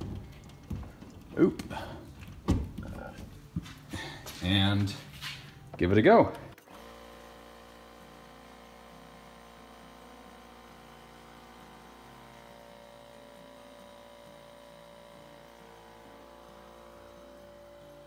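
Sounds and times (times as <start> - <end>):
air compressor running: 6.3 - 18.0.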